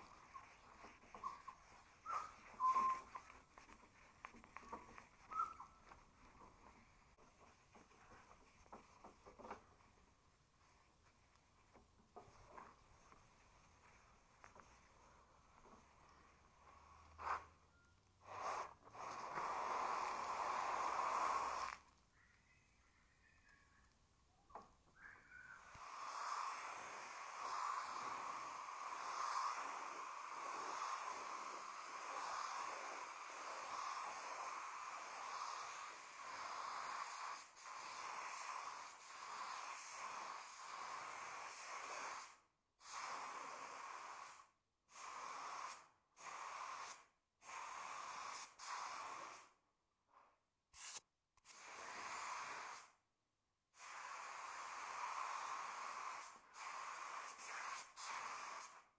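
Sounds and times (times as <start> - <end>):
paint spray gun hissing: 18.4 - 21.8, 25.6 - 44.4, 53.8 - 58.8.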